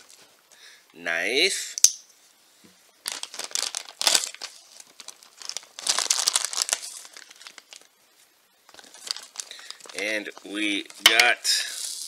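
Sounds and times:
plastic packaging crackling: 3.0 - 8.0, 8.7 - 12.0.

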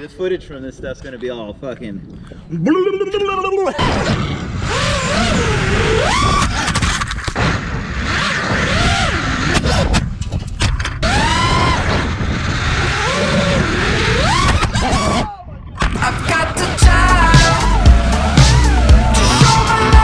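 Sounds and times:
wind rush on microphone: 0.0 - 2.7, 3.8 - 16.8
drone motors whining: 4.1 - 9.9, 11.0 - 20.0.

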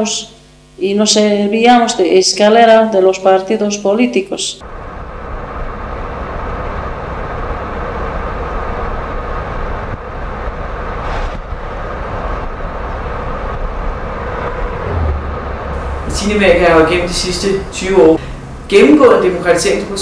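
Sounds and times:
motor vehicle driving: 13.5 - 20.0.

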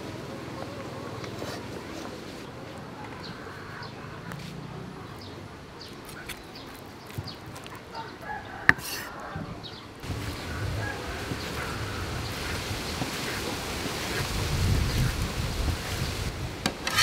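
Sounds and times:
birds chirping: 2.4 - 16.3.

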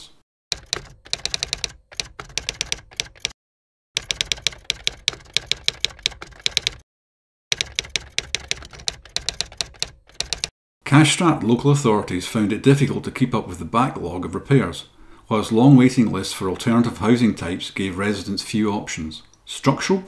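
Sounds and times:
typewriter keys clacking: 0.5 - 3.4, 4.0 - 6.8, 7.5 - 10.5.

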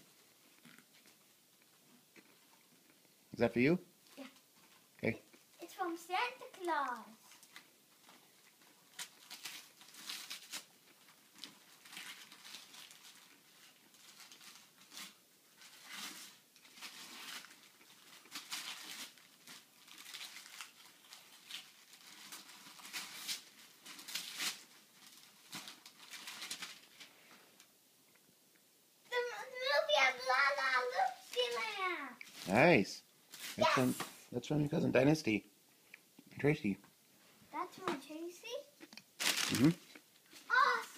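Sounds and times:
wrapping paper tearing: 5.6 - 8.2, 8.9 - 27.1, 29.2 - 32.6, 33.3 - 34.1, 39.2 - 40.9.

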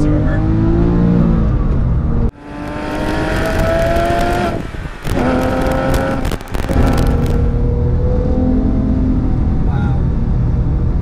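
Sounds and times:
car engine accelerating hard: 0.0 - 11.0.

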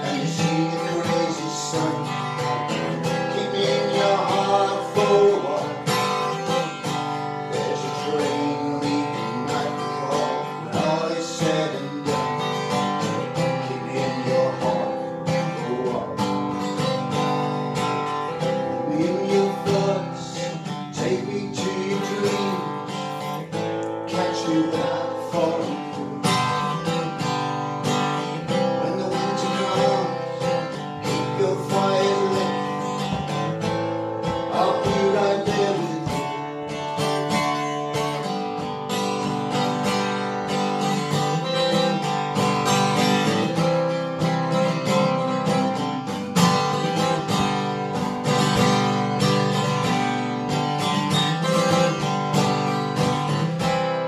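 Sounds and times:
man singing: 0.0 - 16.9, 18.4 - 36.8, 41.1 - 42.2, 42.8 - 47.1
acoustic guitar strumming: 0.0 - 54.0.

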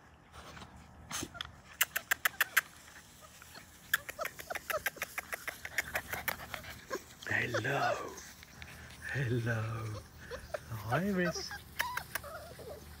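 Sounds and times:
puppies squeaking: 1.2 - 13.0
sharp clicks and ticks: 1.8 - 2.8, 3.9 - 6.6.

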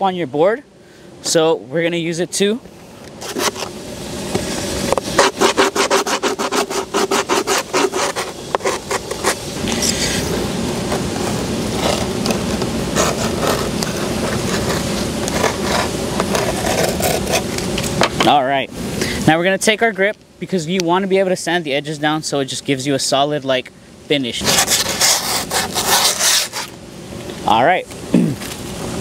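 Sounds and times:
metal tool scraping grip tape: 3.2 - 3.7, 5.0 - 10.2, 24.4 - 26.7.

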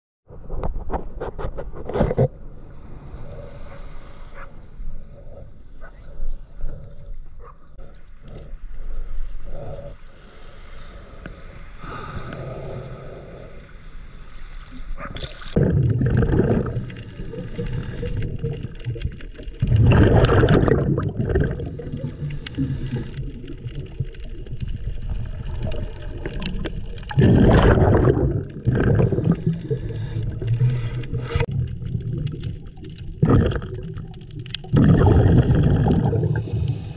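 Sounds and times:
underwater water noise: 0.3 - 36.9
gurgling exhaled bubbles: 14.7 - 36.9.

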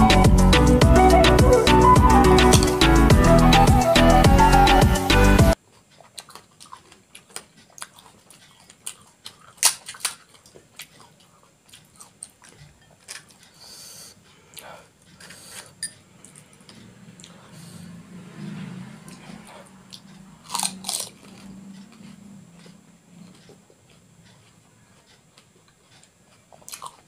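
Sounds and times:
puri shells cracking: 9.3 - 10.5.

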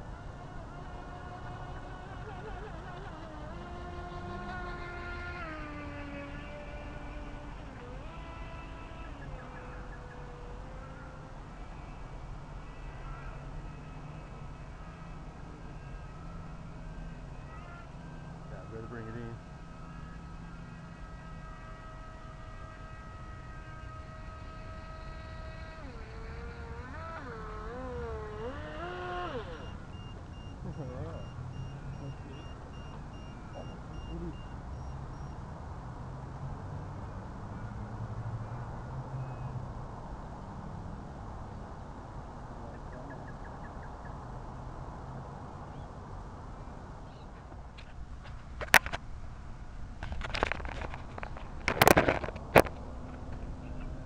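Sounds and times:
electric motor whining: 0.0 - 34.6, 50.0 - 54.0
camera handling clicks and knocks: 48.6 - 49.0, 50.0 - 52.8.

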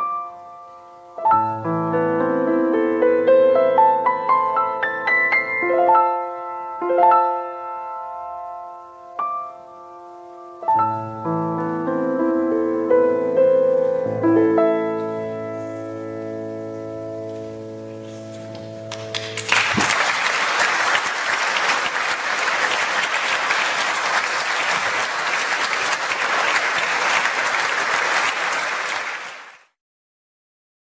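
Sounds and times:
audience applause: 18.9 - 29.8.

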